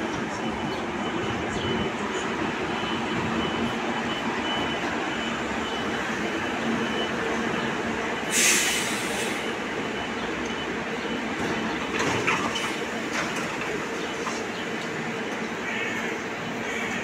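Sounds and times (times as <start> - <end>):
electric train rumbling: 0.0 - 17.0
air hiss: 8.3 - 9.4
wheels clicking over rail joints: 11.2 - 15.5.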